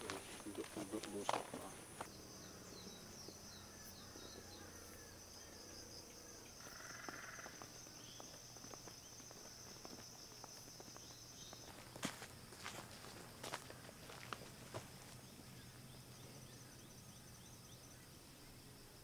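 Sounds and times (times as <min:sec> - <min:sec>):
bird chirps: 0:00.0 - 0:11.8
high-pitched insect trill: 0:00.0 - 0:19.0.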